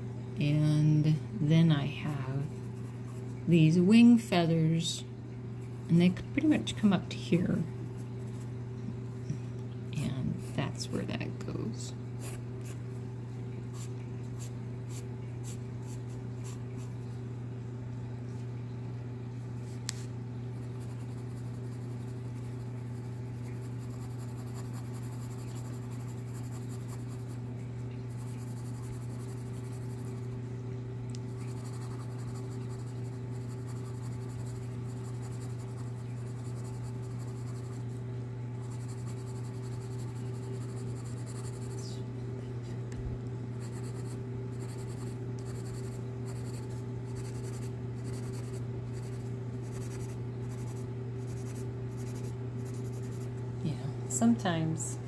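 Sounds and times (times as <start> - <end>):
steady low hum: 0.0 - 55.0
pencil scratching on paper: 47.2 - 53.3.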